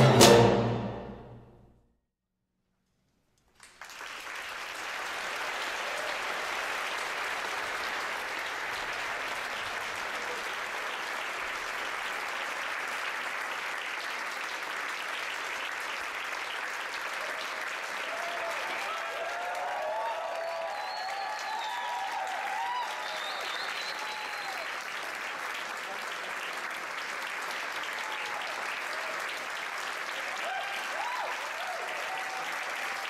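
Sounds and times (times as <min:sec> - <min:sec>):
audience applauding: 0:03.5 - 0:33.0
audience cheering: 0:04.8 - 0:11.2, 0:17.0 - 0:25.0, 0:27.7 - 0:33.0.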